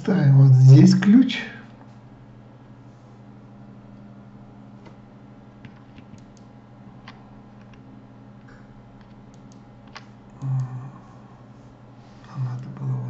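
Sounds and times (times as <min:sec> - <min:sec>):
low electrical hum: 0:00.0 - 0:13.0
computer mouse clicking: 0:05.7 - 0:07.8, 0:08.4 - 0:10.6.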